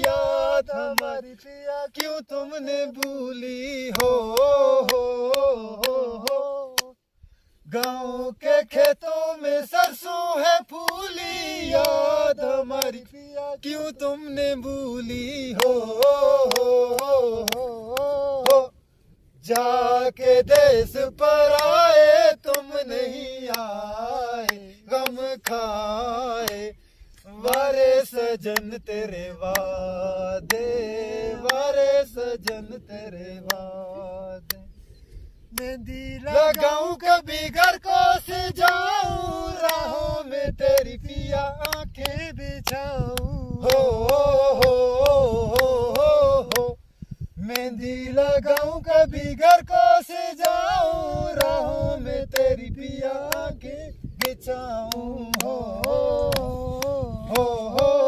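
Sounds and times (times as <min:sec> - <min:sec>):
hand claps: 0:00.0 - 0:01.2, 0:02.0 - 0:02.3, 0:02.9 - 0:03.2, 0:03.8 - 0:07.0, 0:07.7 - 0:08.0, 0:08.7 - 0:09.1, 0:09.7 - 0:10.1, 0:10.8 - 0:13.0, 0:15.2 - 0:18.7, 0:19.4 - 0:19.8, 0:20.5 - 0:20.8, 0:21.5 - 0:23.7, 0:24.4 - 0:26.7, 0:27.4 - 0:28.8, 0:29.4 - 0:29.7, 0:30.4 - 0:30.8, 0:31.4 - 0:32.7, 0:33.4 - 0:33.8, 0:34.4 - 0:34.6, 0:35.5 - 0:36.8, 0:37.5 - 0:37.8, 0:38.5 - 0:40.9, 0:41.6 - 0:46.7, 0:47.4 - 0:48.8, 0:49.4 - 0:58.0
men singing folk melody: 0:00.0 - 0:58.0.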